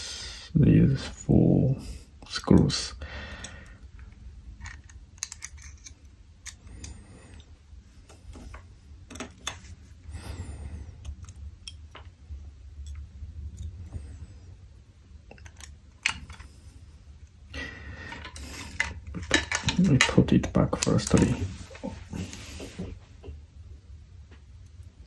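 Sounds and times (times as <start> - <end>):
metal tweezers clicking and tapping: 12.8 - 13.8.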